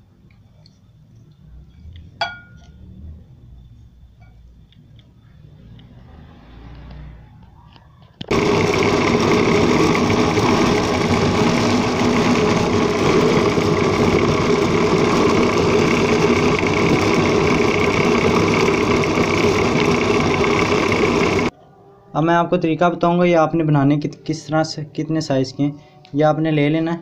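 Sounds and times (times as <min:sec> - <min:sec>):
electric food chopper motor: 0:08.2 - 0:21.5.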